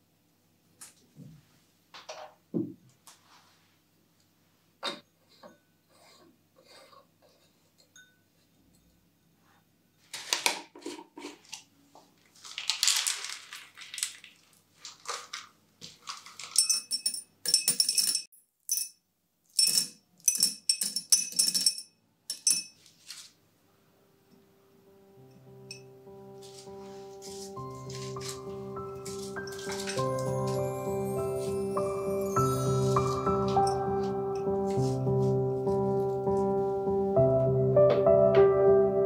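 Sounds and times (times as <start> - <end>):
handling knocks and rattles: 27.7 - 30.6.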